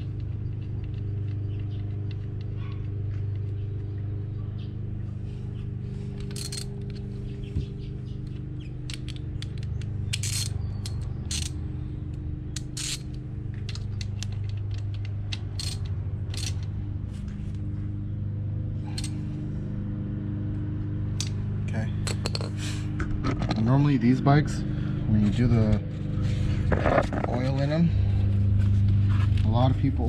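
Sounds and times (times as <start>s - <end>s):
steady low hum: 0.0s - 30.0s
socket ratchet clicking: 6.2s - 7.0s, 8.3s - 11.6s, 12.5s - 16.8s.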